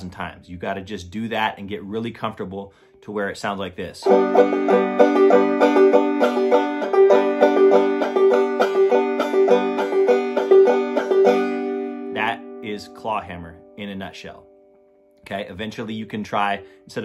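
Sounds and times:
banjo strumming: 4.0 - 14.4.

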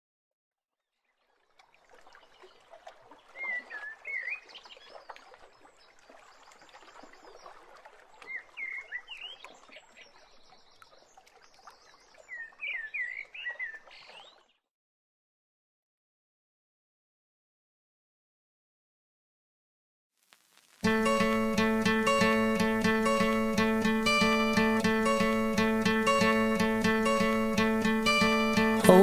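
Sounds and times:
songbird chirping: 8.2 - 14.4, 20.8 - 29.0.

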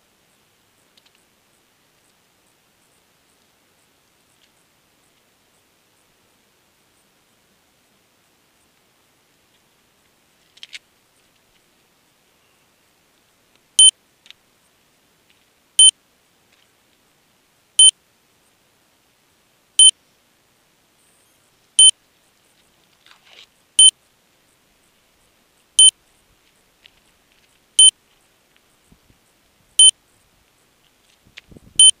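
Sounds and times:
faint rustling and handling: 9.4 - 11.8, 26.0 - 31.6.

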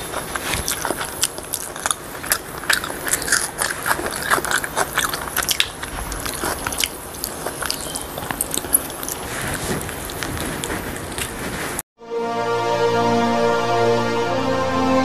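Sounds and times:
chewing crunchy chicken: 0.0 - 11.5.

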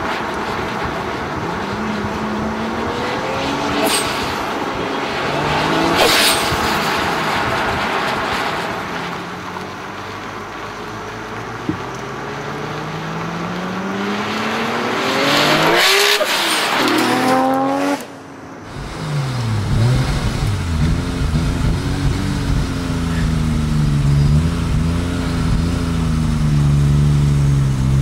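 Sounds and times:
car accelerating past: 11.8 - 28.0
car engine revving inside cabin: 18.7 - 28.0.

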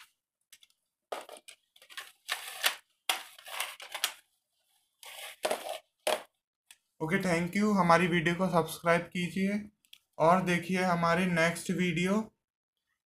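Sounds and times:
plastic toys scraping and clattering: 1.1 - 4.2, 5.0 - 6.0.

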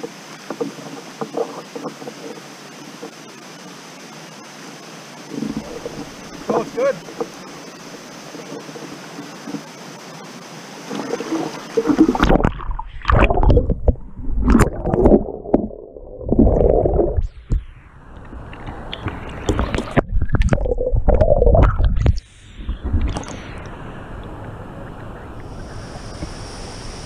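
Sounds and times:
water rushing: 0.0 - 27.0
muffled underwater gurgles: 5.3 - 7.3, 10.9 - 17.7, 19.0 - 23.5.

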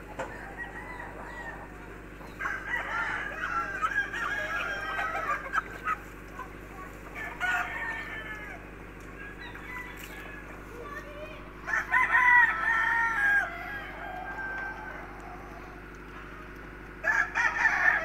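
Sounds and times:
low hum: 0.0 - 17.6
rooster crowing: 0.2 - 5.7, 7.1 - 10.7, 11.6 - 15.8, 17.0 - 18.0.

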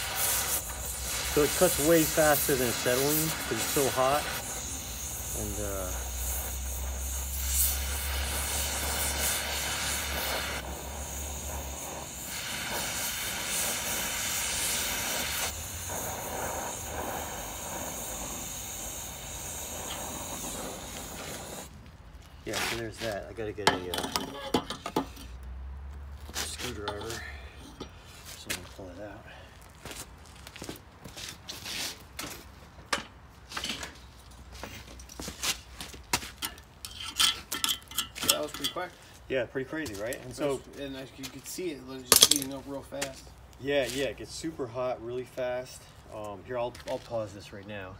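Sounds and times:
cutting torch hissing: 0.0 - 21.8, 38.3 - 47.8.

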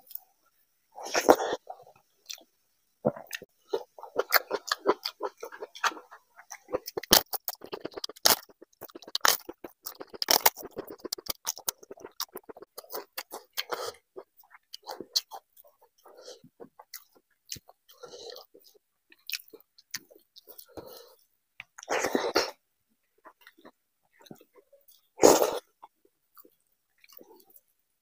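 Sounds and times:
chewing and wet mouth sounds: 1.0 - 27.7
crunching bites: 6.6 - 13.8.

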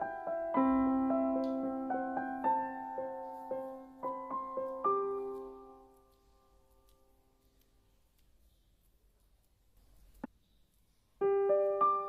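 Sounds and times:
soft solo piano melody: 0.0 - 6.4, 11.2 - 12.0.

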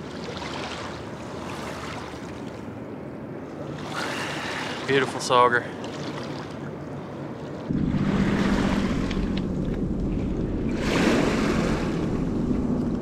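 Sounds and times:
wind buffeting microphone: 7.2 - 13.0
waves washing against rocks: 7.7 - 12.5.

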